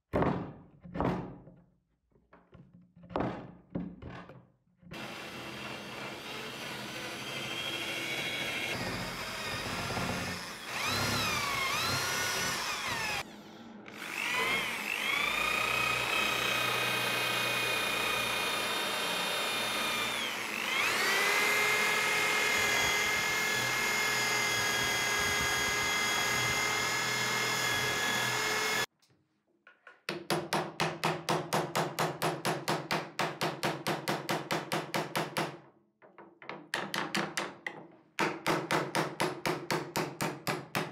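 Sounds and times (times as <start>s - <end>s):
electric drill motor whine: 5.0s - 28.9s.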